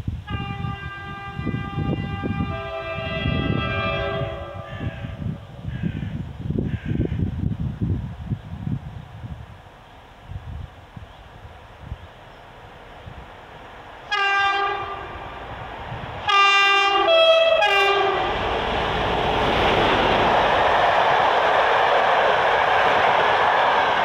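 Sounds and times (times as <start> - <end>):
locomotive horn blasts: 0.2 - 5.2, 14.1 - 15.2, 16.3 - 18.3
train rumbling past: 0.2 - 24.0.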